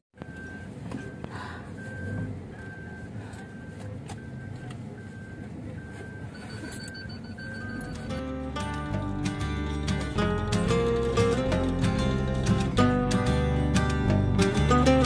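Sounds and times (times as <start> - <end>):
car warning chime beeping: 0.2 - 10.2
car engine hum: 0.2 - 15.0
guitar music: 7.8 - 15.0.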